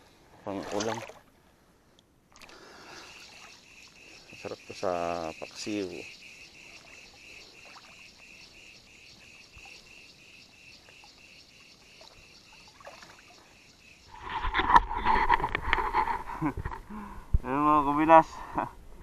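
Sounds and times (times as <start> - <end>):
insects chirring: 2.5 - 16.5.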